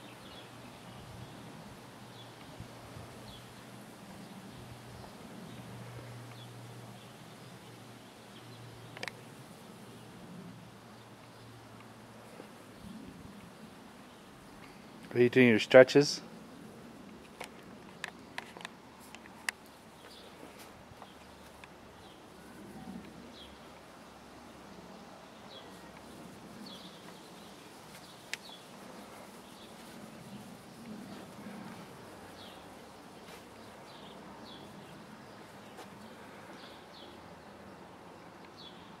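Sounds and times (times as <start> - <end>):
steady outdoor hiss: 0.0 - 39.0
faint sharp clicks: 8.9 - 9.2, 17.1 - 20.2, 28.0 - 28.6.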